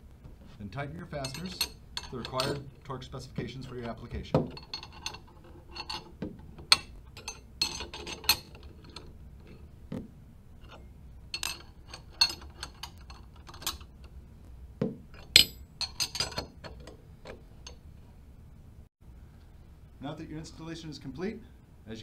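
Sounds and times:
wrenches clinking on metal nuts: 1.1 - 9.6, 10.7 - 14.1, 15.1 - 17.8.

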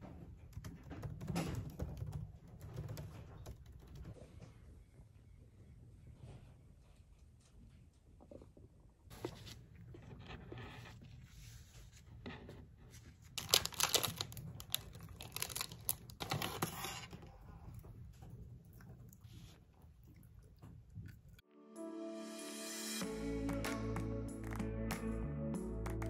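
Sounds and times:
plastic wrapper crinkling: 13.1 - 17.0.

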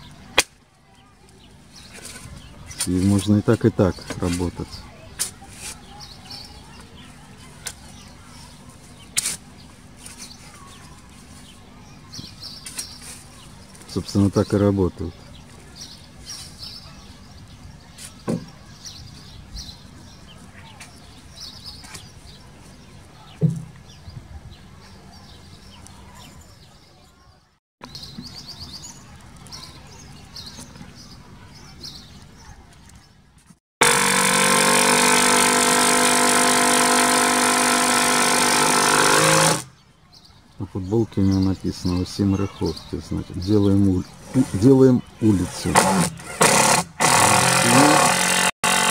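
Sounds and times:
small birds chirping: 0.0 - 33.6, 39.6 - 48.9
cordless drill motor whine: 33.8 - 39.6, 45.8 - 48.9.

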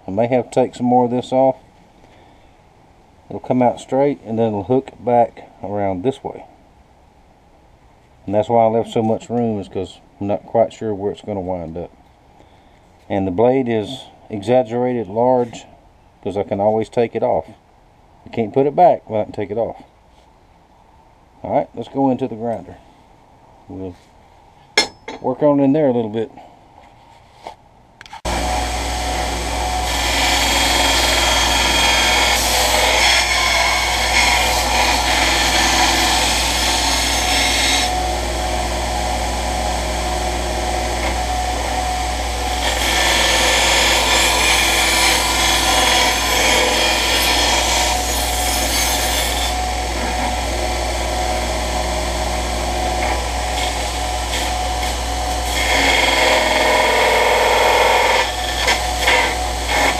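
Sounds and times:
belt grinder motor hum: 28.3 - 59.9
steel grinding on belt: 28.3 - 59.9.

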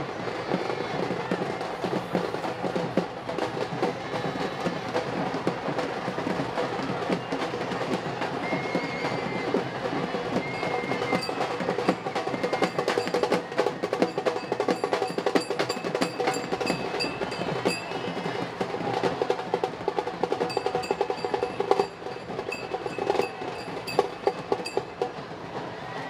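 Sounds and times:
fast continuous drumming: 0.0 - 26.0.

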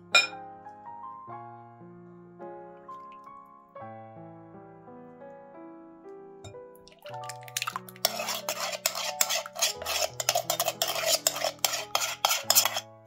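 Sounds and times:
soft background music: 0.0 - 13.0
metal spoon scraping a tin can: 7.2 - 12.9.

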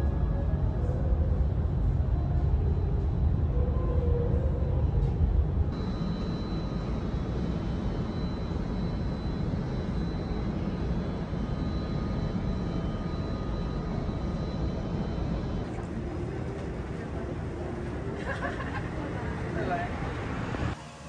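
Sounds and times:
low rumbling ambient noise: 0.0 - 21.0.

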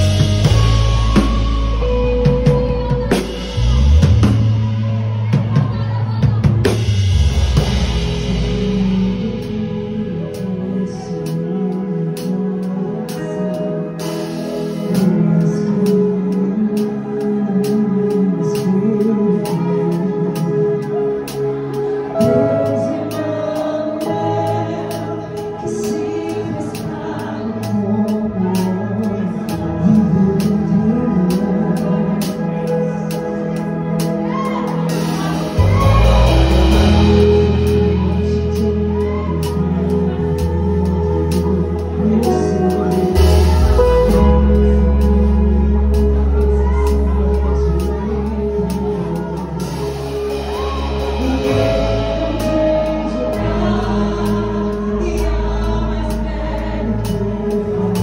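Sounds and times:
drum kit beat: 0.0 - 10.6, 34.0 - 48.0, 48.6 - 58.0
band playing: 0.0 - 58.0
bass line: 0.0 - 58.0
person singing: 0.0 - 58.0
sustained low notes: 0.0 - 58.0.

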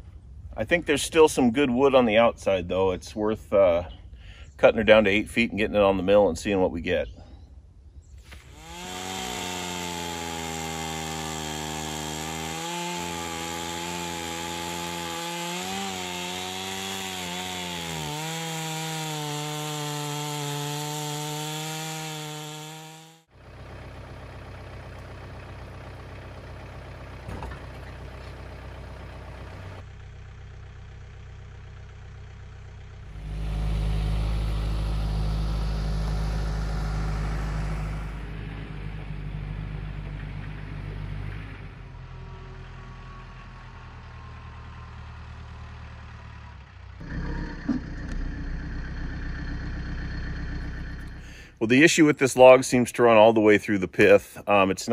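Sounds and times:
chainsaw cutting log: 8.2 - 23.3, 33.0 - 39.2, 47.0 - 51.6
tractor engine running: 23.2 - 54.1.

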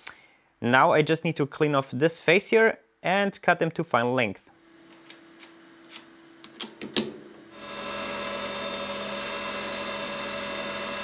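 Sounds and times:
metal lathe whining: 7.5 - 11.0.

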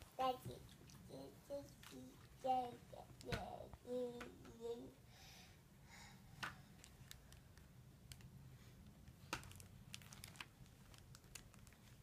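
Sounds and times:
picture book clicks and rustles: 9.0 - 12.0.

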